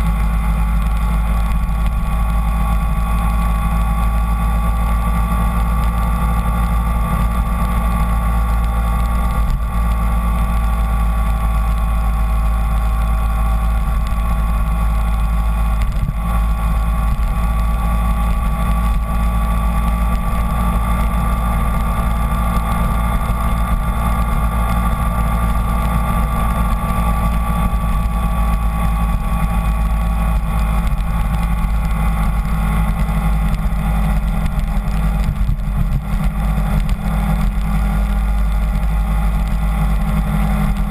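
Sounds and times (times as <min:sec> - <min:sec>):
motorcycle engine cruising: 0:00.0 - 0:40.9
wind rush on microphone: 0:00.0 - 0:40.9.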